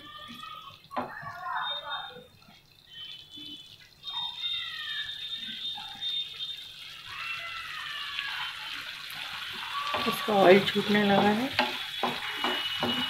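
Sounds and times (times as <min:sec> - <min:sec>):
gravy bubbling in a pan: 0:00.0 - 0:13.0
wooden spatula stirring: 0:09.1 - 0:13.0.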